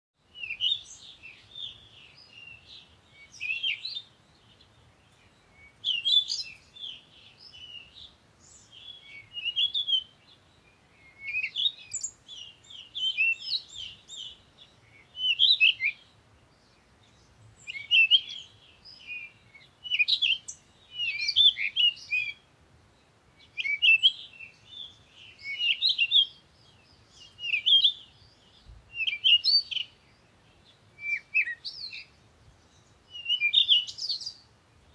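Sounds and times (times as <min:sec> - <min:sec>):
small birds chirping: 0:00.2 - 0:34.9.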